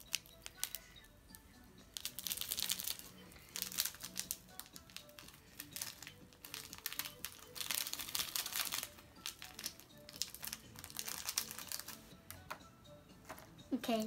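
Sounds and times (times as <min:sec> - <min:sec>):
faint background music: 0:00.0 - 0:14.0
plastic bag crinkling: 0:02.0 - 0:12.0.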